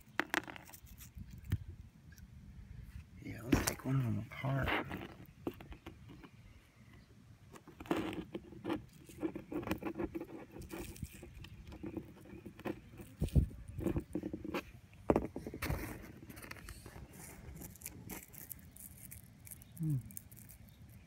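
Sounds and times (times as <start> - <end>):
dry mud crumbling and scraping: 3.3 - 6.3, 7.6 - 21.0.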